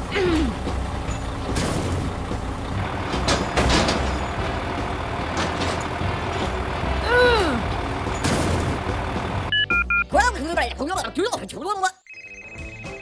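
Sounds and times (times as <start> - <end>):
truck engine running: 0.0 - 10.8.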